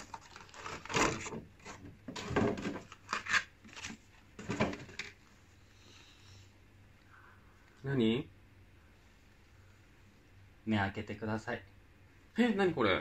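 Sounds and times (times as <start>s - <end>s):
plastic packaging crinkling: 0.0s - 4.0s.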